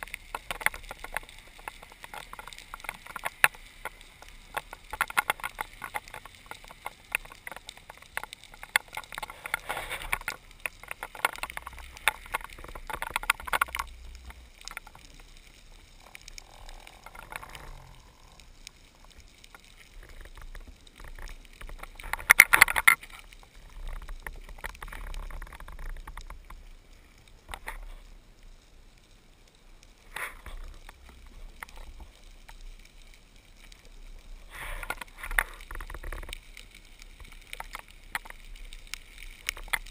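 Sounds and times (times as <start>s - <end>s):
rushing water noise: 0.0s - 26.0s
underwater crackle of clicks: 0.0s - 39.9s.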